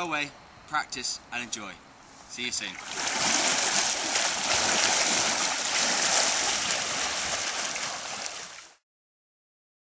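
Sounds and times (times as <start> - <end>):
kayak paddle strokes splashing: 2.8 - 8.8
water churning around hull: 2.8 - 8.8.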